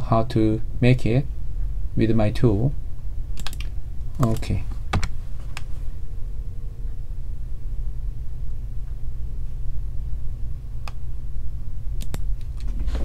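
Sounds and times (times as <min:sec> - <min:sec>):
low background rumble: 0:00.0 - 0:13.0
sharp click: 0:12.0 - 0:12.6.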